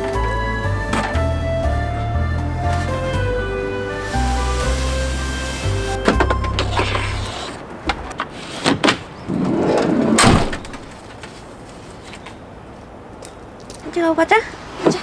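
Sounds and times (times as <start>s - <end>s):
van door slamming: 10.1s - 11.0s.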